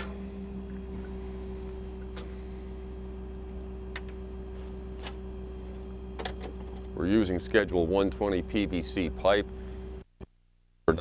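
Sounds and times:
truck engine idling: 0.0s - 10.0s.

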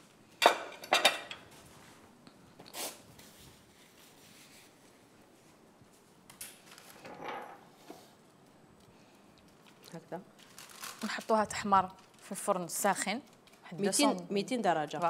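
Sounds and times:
utensils and dishes clinking: 0.4s - 1.5s.

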